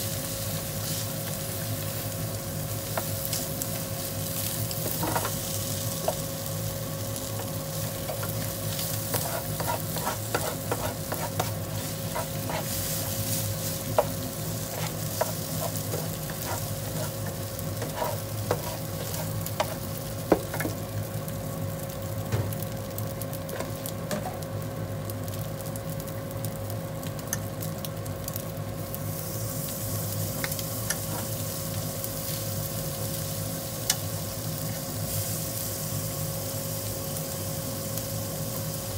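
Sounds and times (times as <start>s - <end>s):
steady hum: 0.0s - 25.3s
rice sizzling in a frying pan: 0.0s - 38.9s
utensil scraping and tapping pan: 9.1s - 11.6s.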